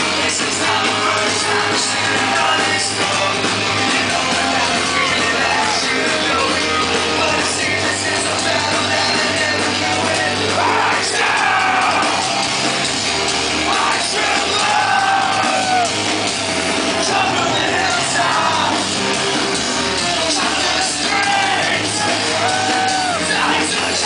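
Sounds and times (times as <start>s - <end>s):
person singing: 0.0s - 12.2s, 20.0s - 24.0s
live rock band playing: 0.0s - 24.0s.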